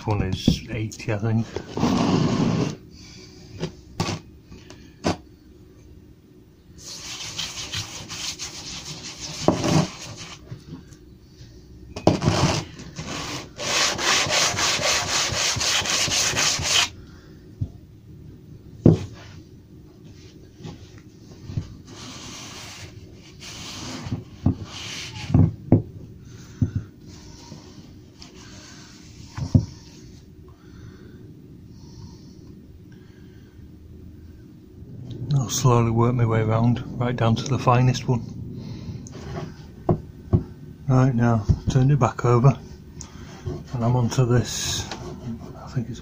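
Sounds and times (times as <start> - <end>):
blade scraping on abrasive paper: 6.8 - 10.4, 12.1 - 16.9.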